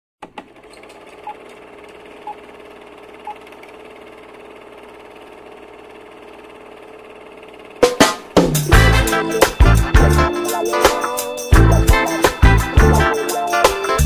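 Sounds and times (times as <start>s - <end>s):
film projector whirring: 0.2s - 8.4s.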